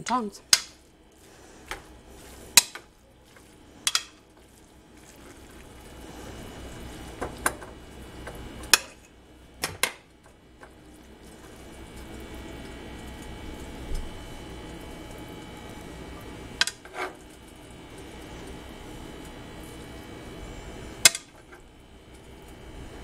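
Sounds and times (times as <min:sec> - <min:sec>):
metal tongs clacking on cookware: 0:03.8 - 0:04.2.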